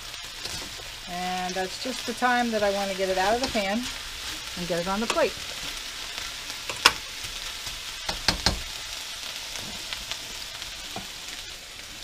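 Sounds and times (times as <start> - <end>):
stir-fry sizzling in a skillet: 0.0 - 12.0
spatula scraping a pan: 1.7 - 6.0.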